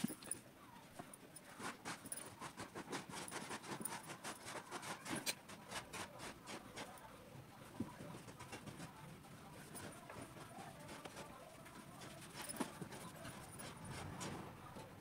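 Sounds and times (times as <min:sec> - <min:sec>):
hands rustling on paper: 0:07.6 - 0:15.0.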